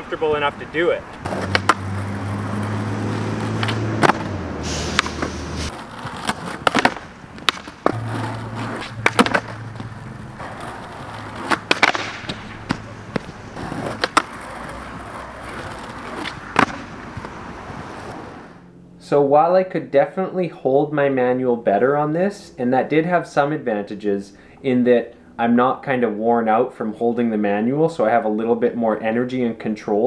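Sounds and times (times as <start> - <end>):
skateboard rolling on concrete: 0.0 - 18.7
skateboard tail clacks: 1.2 - 2.0, 3.6 - 18.2.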